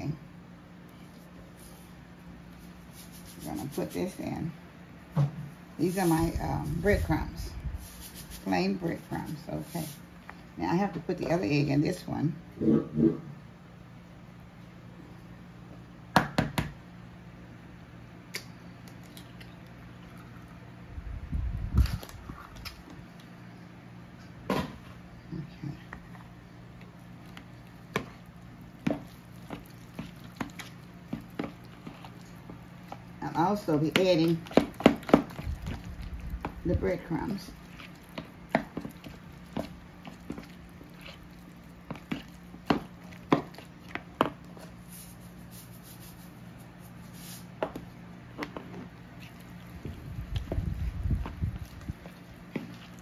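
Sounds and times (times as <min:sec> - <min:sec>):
faint steady hum: 0:00.0 - 0:53.0
breadcrumbs shaken with soft hiss: 0:05.8 - 0:10.1
wet squishing of raw meat: 0:26.8 - 0:33.2, 0:34.0 - 0:45.3, 0:49.0 - 0:53.0.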